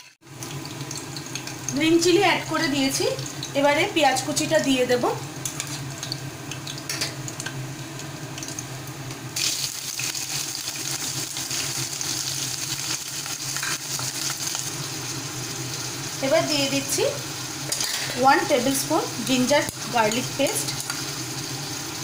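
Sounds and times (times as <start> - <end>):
chillies sizzling in hot oil: 0.0 - 22.0
onion hissing in oil: 9.4 - 22.0.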